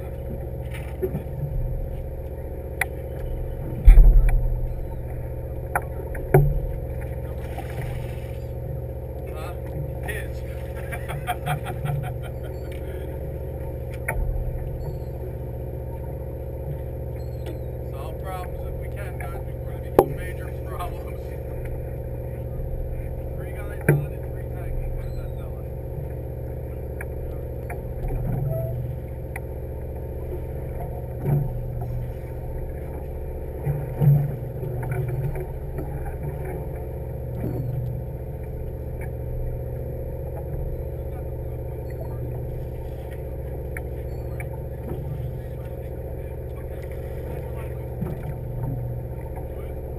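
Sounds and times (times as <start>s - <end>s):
boat engine droning: 0.0s - 49.9s
low knock thump: 3.7s - 6.8s.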